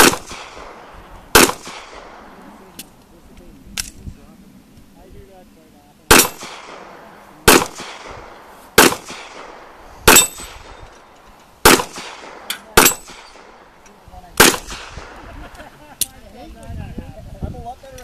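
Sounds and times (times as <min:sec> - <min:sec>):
pistol shots with echo: 0:00.0 - 0:02.4, 0:06.1 - 0:10.9, 0:11.6 - 0:13.8, 0:14.4 - 0:15.2.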